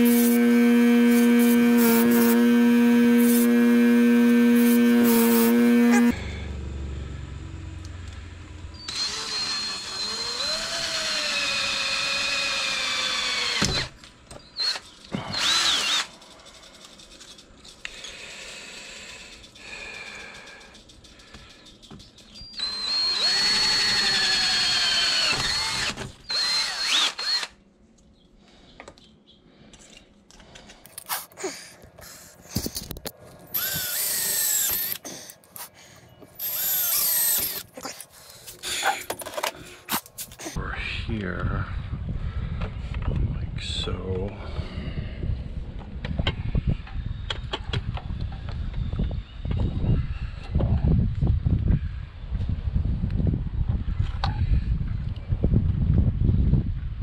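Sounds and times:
cordless drill boring through metal: 0.0s - 6.2s, 8.8s - 14.0s, 14.6s - 16.8s, 22.5s - 27.6s, 33.5s - 38.0s
drill trigger blips: 0.0s - 6.2s, 8.8s - 11.3s, 22.6s - 27.5s, 33.5s - 35.0s, 36.3s - 37.7s.

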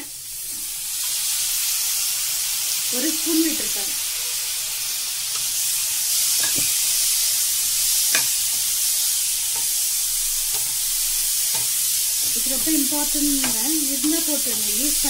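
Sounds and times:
corn sizzling in frying pan: 0.0s - 15.0s
spoon scraping pan: 6.3s - 6.9s.

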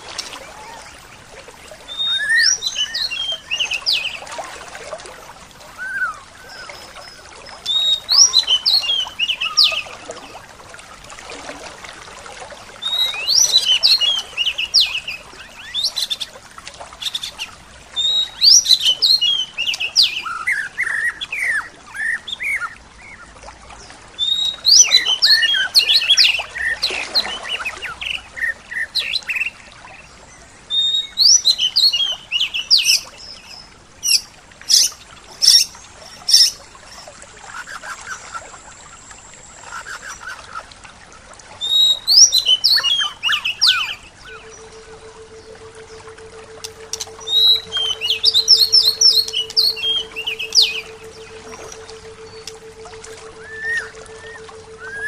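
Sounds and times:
songbird singing: 0.0s - 4.3s, 5.7s - 10.3s, 12.8s - 40.6s, 41.6s - 55.0s
other birds calling: 34.0s - 38.5s, 41.6s - 55.0s.

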